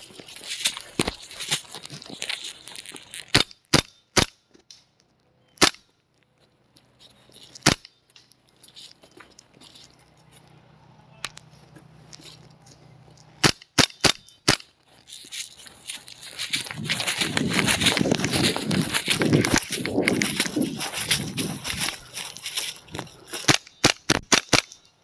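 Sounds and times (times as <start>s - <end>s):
airsoft gun shots: 13.4s - 14.6s, 23.4s - 24.8s.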